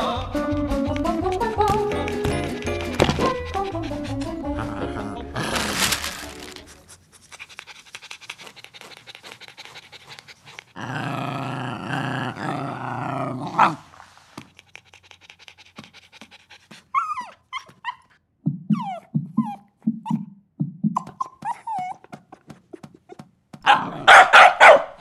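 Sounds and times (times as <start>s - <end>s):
cartoon dog whimpering: 3.3s - 6.7s, 16.9s - 23.3s
cartoon dog yelping: 18.7s - 20.3s, 21.0s - 22.2s.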